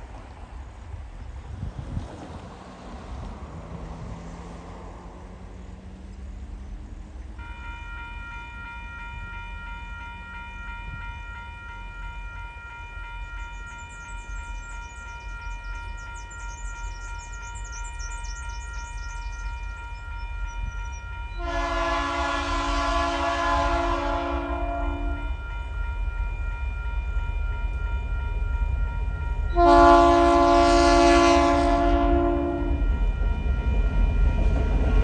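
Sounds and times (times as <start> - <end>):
crossing warning bell ringing: 7.4 - 35.0
locomotive horn: 21.0 - 25.5, 29.5 - 33.0.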